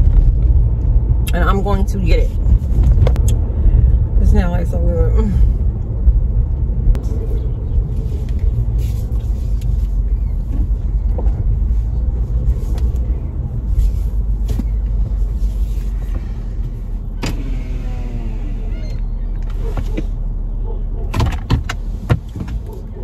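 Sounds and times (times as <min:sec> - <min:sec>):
car driving rumble: 0:00.0 - 0:23.0.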